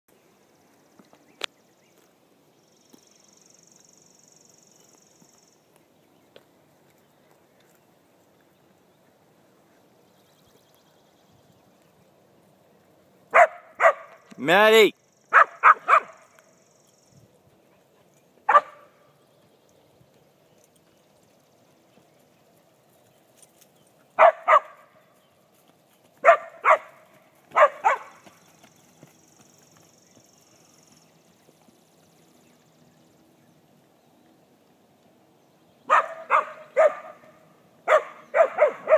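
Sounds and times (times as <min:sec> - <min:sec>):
open-field ambience: 0:00.1 - 0:38.9
dog barking: 0:13.3 - 0:14.2, 0:15.3 - 0:16.2, 0:18.5 - 0:18.9, 0:24.2 - 0:24.8, 0:26.2 - 0:28.2, 0:35.9 - 0:38.9.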